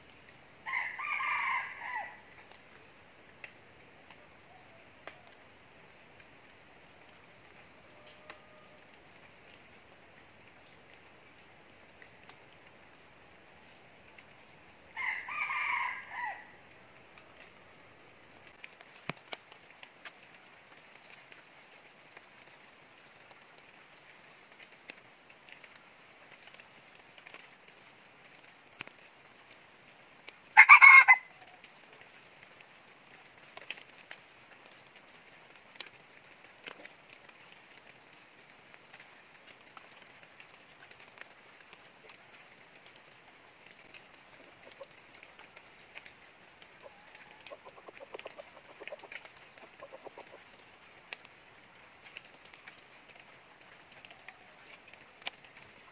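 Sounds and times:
faint high hiss: 0:00.0 - 0:30.5
rooster crowing: 0:00.6 - 0:02.3, 0:15.0 - 0:16.6, 0:30.6 - 0:31.3.

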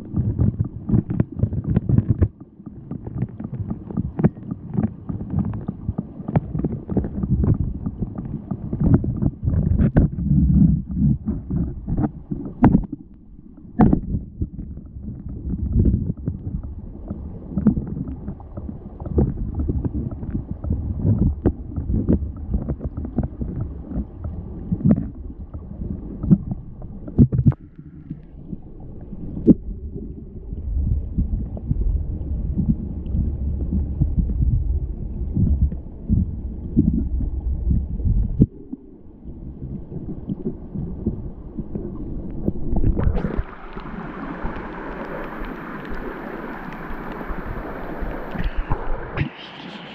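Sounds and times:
underwater clicks and knocks: 0:00.0 - 0:38.9, 0:39.6 - 0:49.9
underwater stream gurgle: 0:00.0 - 0:49.9
running water hiss: 0:43.0 - 0:49.9.

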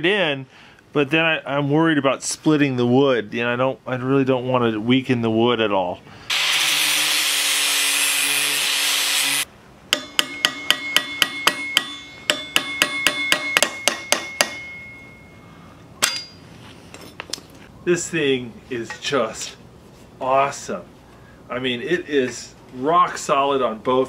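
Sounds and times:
power tool running: 0:06.3 - 0:09.5
hammer tapping steel: 0:09.9 - 0:15.3, 0:16.0 - 0:16.4.

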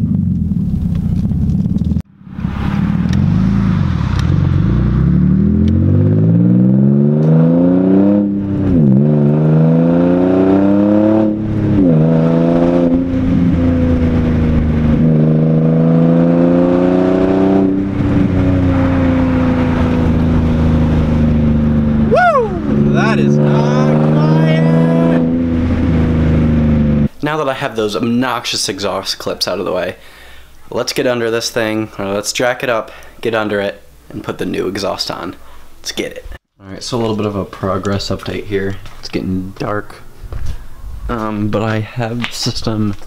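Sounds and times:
car engine accelerating: 0:00.0 - 0:27.1.

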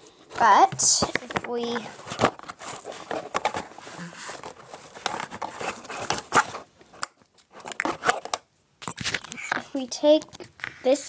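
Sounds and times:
clicks and taps of handling: 0:00.4 - 0:01.9.

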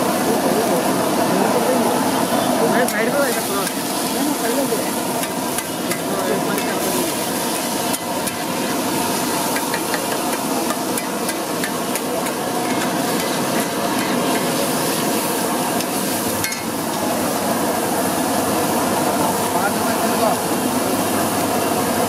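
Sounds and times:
metal spatula scraping griddle: 0:05.2 - 0:14.8.

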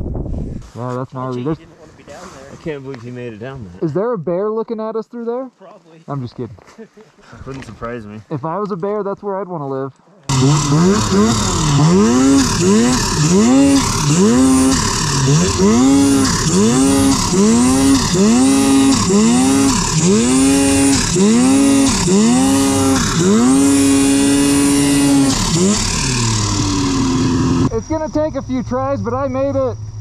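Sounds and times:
snowmobile engine revving: 0:10.3 - 0:29.8.

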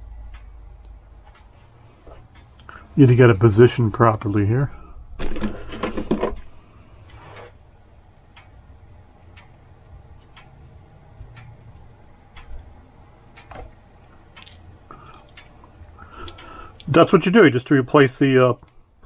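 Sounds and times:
pendulum clock ticking: 0:00.0 - 0:01.6, 0:08.2 - 0:13.6.

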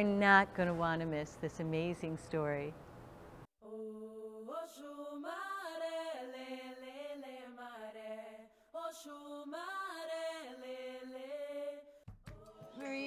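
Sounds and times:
person singing chant-like melody: 0:12.4 - 0:13.0.

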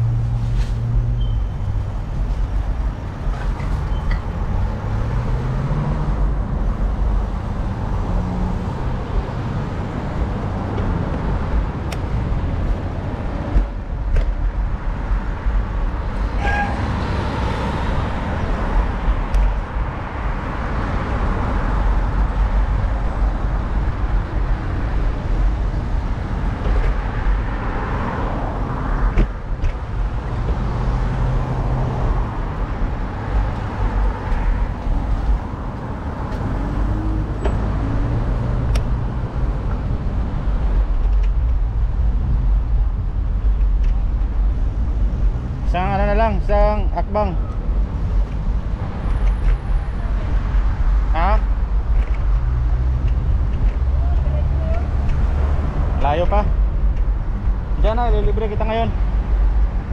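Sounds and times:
cars and engines going by: 0:00.0 - 0:59.9
steady low rumble: 0:38.8 - 0:59.9.

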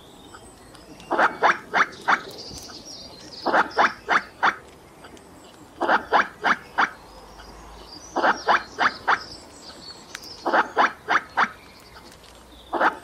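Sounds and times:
squirrel alarm barks: 0:01.0 - 0:02.7, 0:03.4 - 0:04.7, 0:05.8 - 0:09.4, 0:10.4 - 0:12.1, 0:12.7 - 0:13.0.

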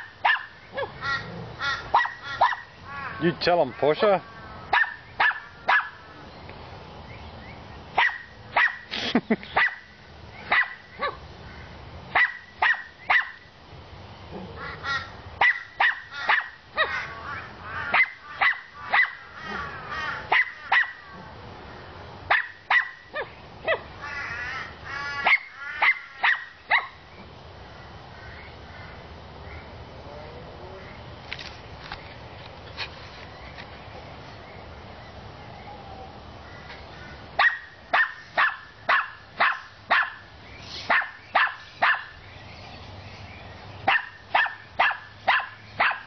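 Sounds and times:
dog barking: 0:00.0 - 0:01.0, 0:01.9 - 0:02.7, 0:04.7 - 0:06.0, 0:08.0 - 0:08.9, 0:09.6 - 0:09.8, 0:10.5 - 0:11.2, 0:12.1 - 0:13.4, 0:15.4 - 0:17.0, 0:17.9 - 0:19.2, 0:20.3 - 0:21.0, 0:22.3 - 0:23.8, 0:25.2 - 0:27.0, 0:37.4 - 0:40.3, 0:40.9 - 0:42.2, 0:43.8 - 0:46.0.

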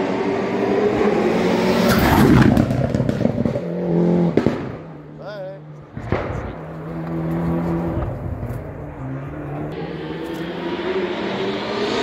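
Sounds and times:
race car engine passing: 0:00.0 - 0:12.0.

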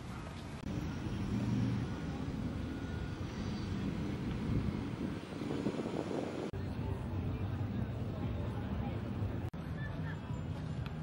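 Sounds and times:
diesel engine idling: 0:00.6 - 0:06.5.

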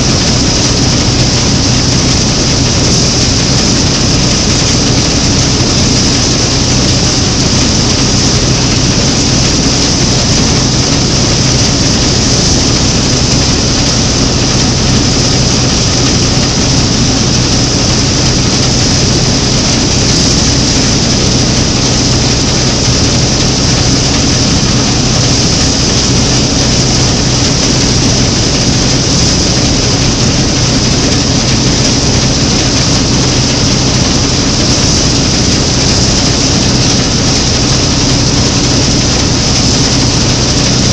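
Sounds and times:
combine harvester mechanical drone: 0:00.0 - 0:40.9.

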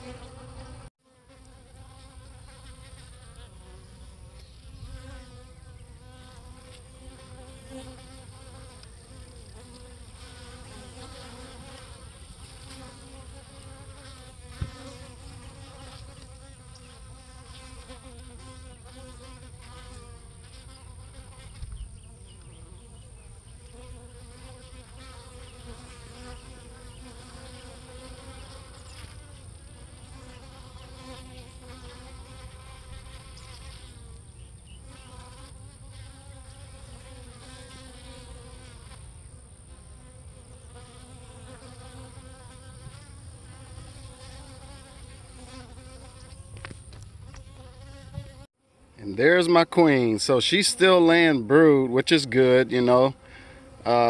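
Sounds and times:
honeybees buzzing: 0:00.0 - 0:54.0.

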